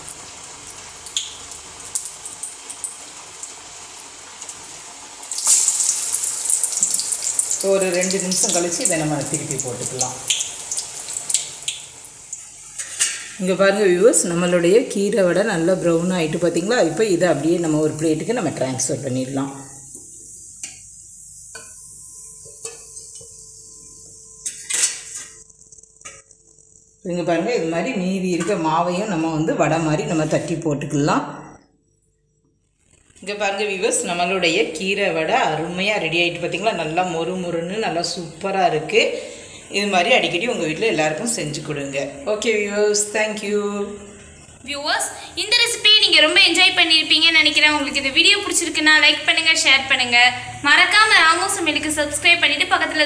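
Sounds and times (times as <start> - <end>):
hot oil sizzling: 0.0 - 30.2, 32.8 - 53.0
utensils clattering: 12.6 - 13.4, 24.4 - 25.4
metal ladle clinking on pan: 12.7 - 13.4.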